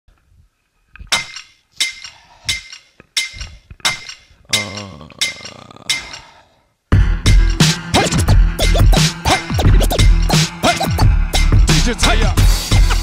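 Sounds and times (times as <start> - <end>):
sharp metallic clinks: 1.1 - 6.4.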